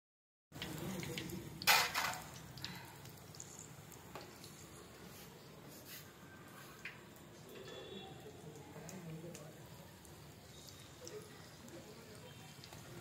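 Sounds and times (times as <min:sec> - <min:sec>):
hot oil sizzling: 0:00.5 - 0:13.0
metal spoon clattering against pan: 0:00.6 - 0:02.8.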